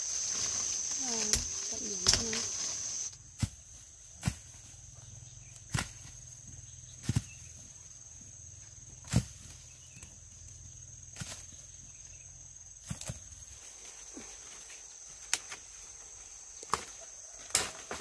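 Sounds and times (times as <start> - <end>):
high insect drone: 0.0 - 18.0
fruit thudding onto grass: 1.0 - 4.5.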